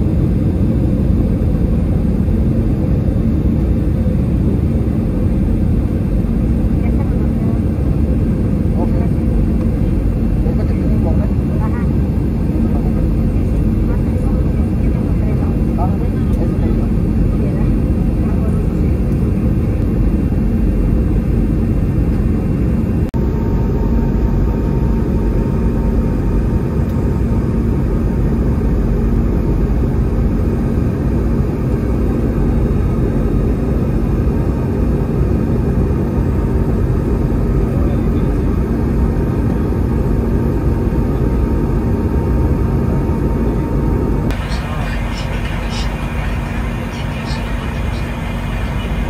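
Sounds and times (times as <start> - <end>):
aircraft engine rumble: 0.0 - 49.0
constant cabin hum: 0.0 - 49.0.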